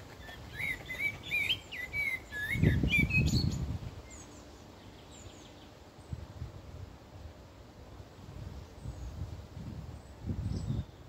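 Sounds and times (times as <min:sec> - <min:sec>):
bird calls: 0:00.0 - 0:05.8
songbird singing: 0:00.0 - 0:06.7, 0:07.4 - 0:11.0.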